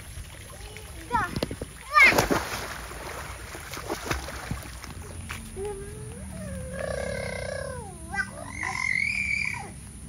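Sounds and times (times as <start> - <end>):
animal call gliding up in pitch: 5.8 - 9.7.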